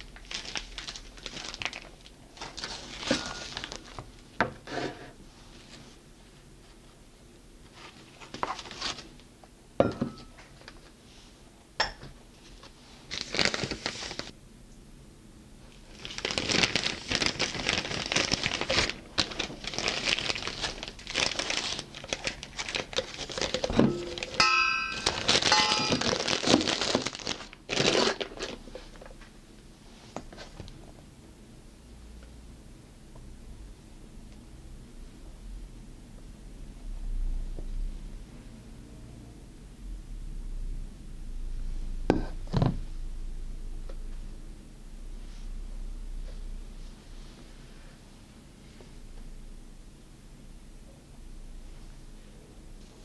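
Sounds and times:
plastic bag crinkling: 0:00.0 - 0:04.0, 0:15.8 - 0:28.7
ringing clink: 0:23.9 - 0:26.0.

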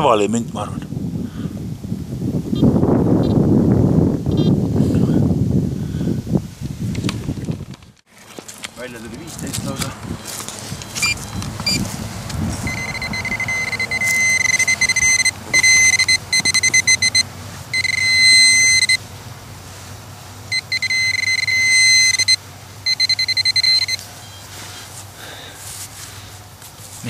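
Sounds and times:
metal detector electronic tone: 0:10.2 - 0:11.9, 0:12.6 - 0:19.0, 0:20.5 - 0:24.6.

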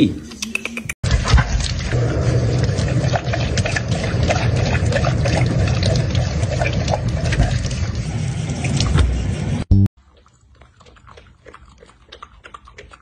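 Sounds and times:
dog lapping water: 0:01.0 - 0:08.1, 0:10.0 - 0:13.0
faucet stream splashing in sink: 0:01.1 - 0:08.0.

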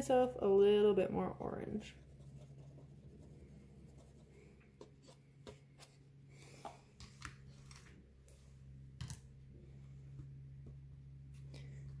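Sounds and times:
steady low hum: 0:00.0 - 0:12.0
palette knife scraping paint: 0:01.8 - 0:06.0.

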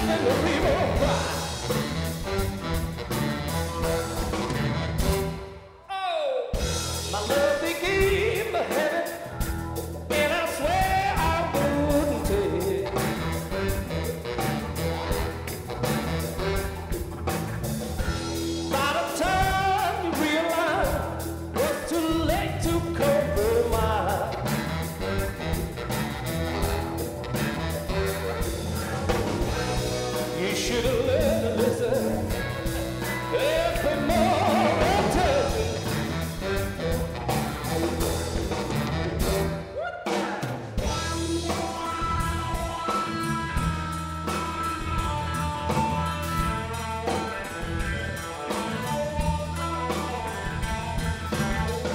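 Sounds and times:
live blues-rock band playing: 0:00.0 - 0:05.8, 0:06.6 - 0:51.9.

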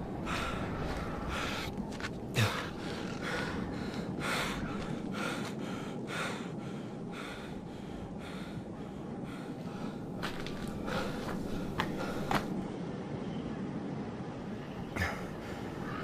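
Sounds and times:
person breathing heavily: 0:00.0 - 0:12.6.

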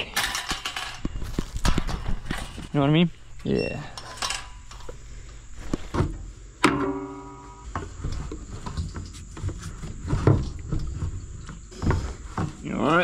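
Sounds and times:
handling clicks and knocks: 0:00.0 - 0:02.8
sharp metallic clang: 0:06.6 - 0:07.7.

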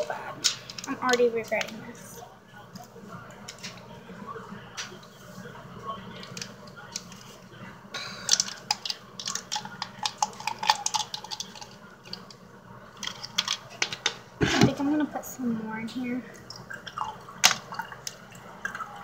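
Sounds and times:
tea bag crinkling: 0:08.0 - 0:14.2.

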